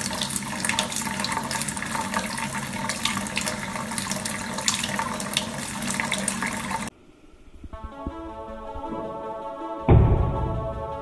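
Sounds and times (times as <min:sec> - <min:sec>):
faucet water splashing into sink: 0:00.0 - 0:06.9.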